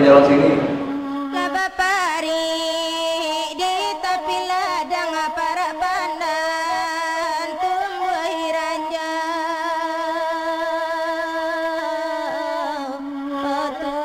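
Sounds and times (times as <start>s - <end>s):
person singing a melody: 0.0s - 14.0s.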